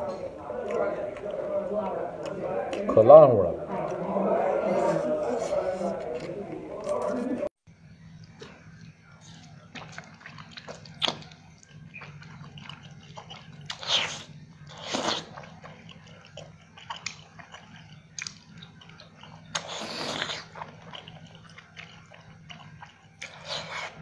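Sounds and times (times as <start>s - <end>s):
wet chewing: 0.0s - 3.0s, 8.2s - 24.0s
slurping noodles: 12.8s - 17.6s, 19.5s - 20.8s, 23.2s - 24.0s.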